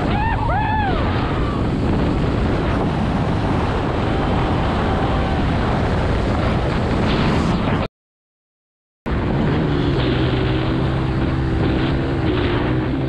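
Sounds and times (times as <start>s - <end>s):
wind buffeting microphone: 0.0s - 7.9s
dirt bike engine running: 9.1s - 13.0s.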